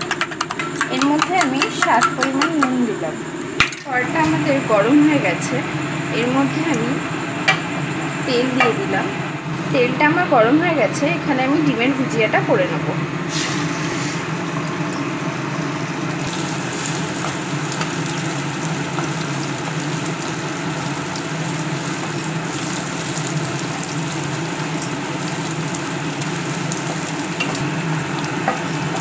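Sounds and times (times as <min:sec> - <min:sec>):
eggs sizzling in oil: 0:00.1 - 0:02.7, 0:13.3 - 0:29.0
steady low hum: 0:00.6 - 0:29.0.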